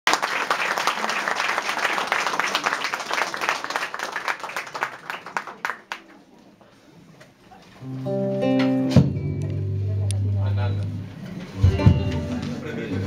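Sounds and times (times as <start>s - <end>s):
audience applause: 0.1s - 6.3s.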